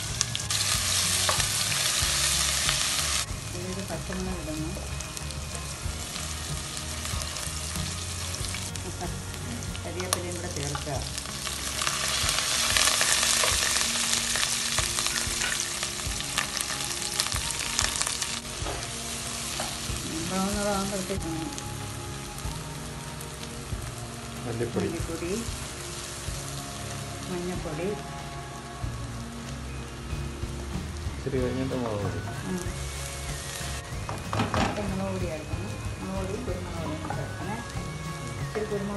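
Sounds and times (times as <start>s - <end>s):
aromatics sizzling in hot oil: 0.0s - 38.9s.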